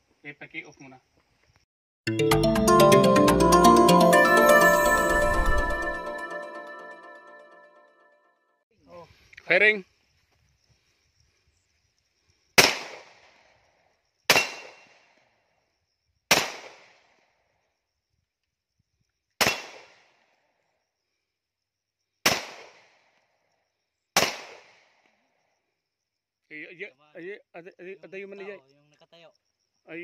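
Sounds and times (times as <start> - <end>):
pistol shots: 24.2 - 24.8.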